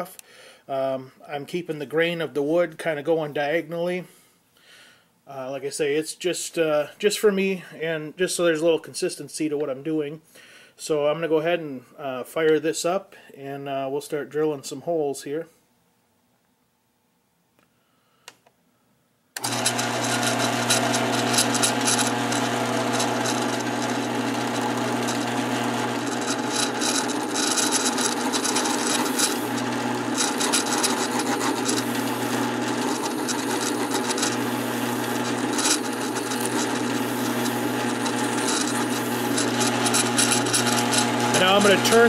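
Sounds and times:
drill bit rasping through wood: 19.4 - 42.0
drill press motor hum: 19.4 - 42.0.

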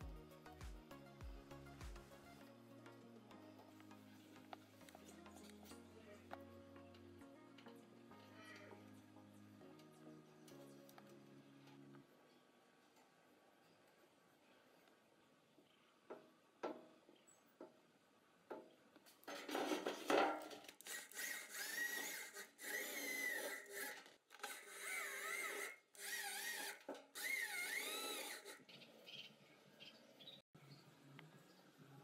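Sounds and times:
electric drill motor whine: 20.8 - 28.6.

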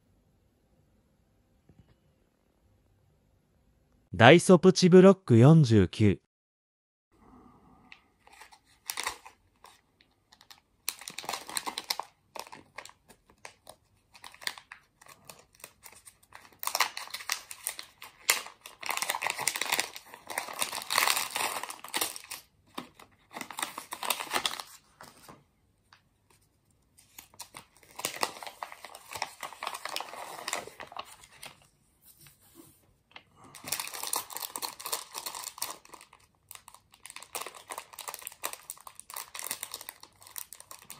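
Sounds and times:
plastic bag crinkling: 8.3 - 24.8, 27.2 - 31.6, 33.6 - 40.9.

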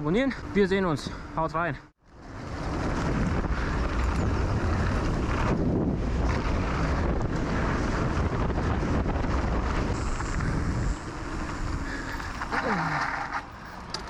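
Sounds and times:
bike tyres rolling over dirt: 2.1 - 14.0
wind buffeting microphone: 2.2 - 12.8.

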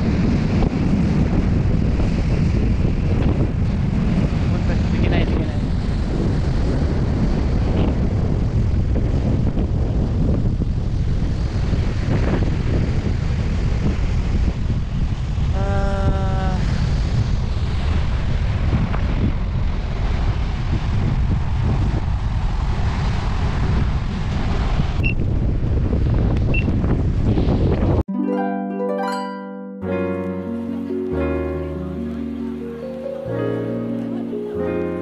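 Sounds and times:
wind buffeting microphone: 0.0 - 28.0
steady pitched tone: 28.1 - 35.0.

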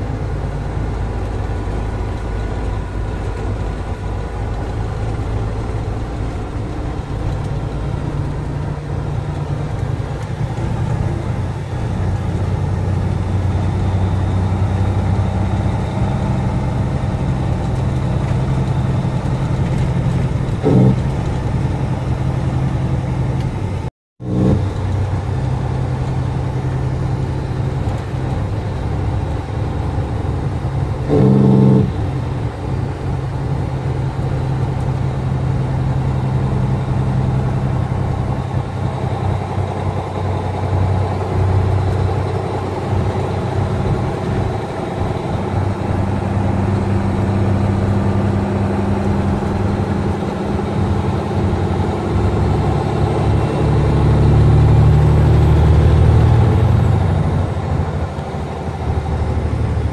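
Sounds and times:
truck engine droning: 0.0 - 59.9
short loud tone: 20.5 - 21.3, 31.1 - 32.1.

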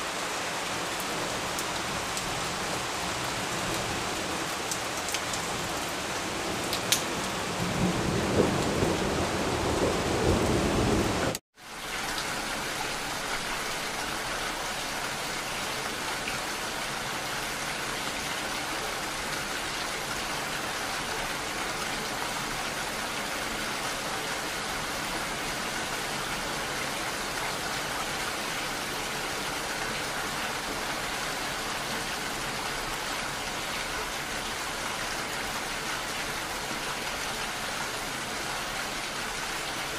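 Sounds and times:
steady rainfall: 0.0 - 39.9
thunder rumbling: 7.2 - 11.4.

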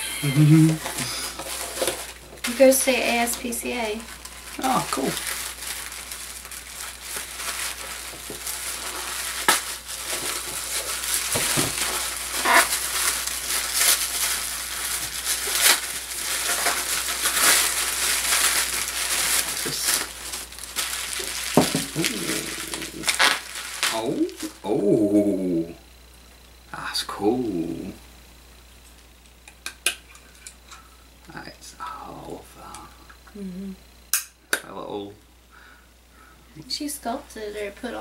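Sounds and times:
tissue paper and bubble wrap crinkling: 0.3 - 24.6.

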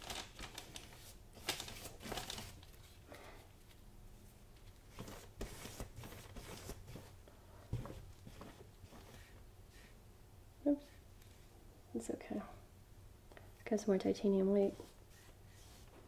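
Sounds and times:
paintbrush swishing on canvas: 14.6 - 16.0.

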